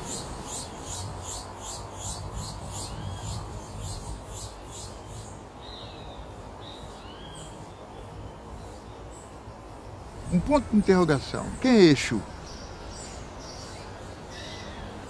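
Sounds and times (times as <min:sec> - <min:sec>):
bird chirping: 0:00.0 - 0:15.0.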